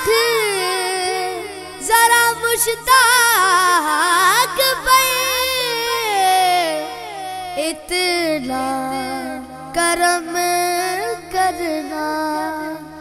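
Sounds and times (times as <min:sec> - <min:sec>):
boy singing: 0:00.0 - 0:13.0.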